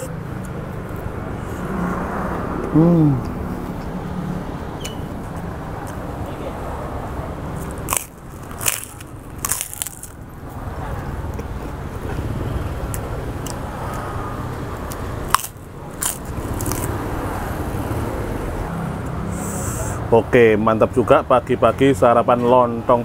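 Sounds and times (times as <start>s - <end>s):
crackers crunching while chewed: 7.6s - 10.2s, 14.9s - 17.0s.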